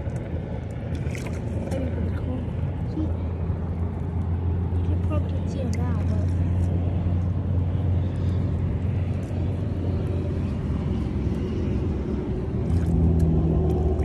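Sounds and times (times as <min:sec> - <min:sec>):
low rumble with hum: 0:00.0 - 0:14.0.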